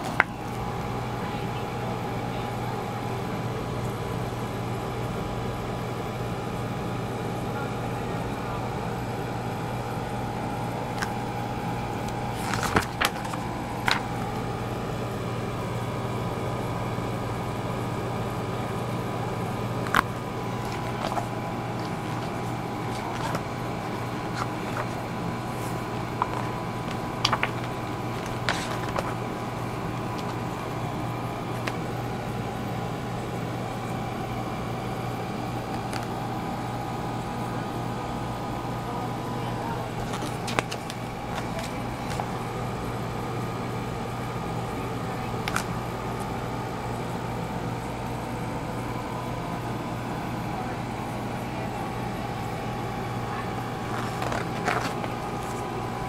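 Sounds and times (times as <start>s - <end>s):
pages rustling and clicking: 0.0s - 0.6s, 10.9s - 11.2s, 12.0s - 14.2s, 19.8s - 30.8s, 31.4s - 32.0s, 35.7s - 36.2s, 40.0s - 42.4s, 45.4s - 45.8s, 53.8s - 55.9s
steady background hum: 0.0s - 56.0s.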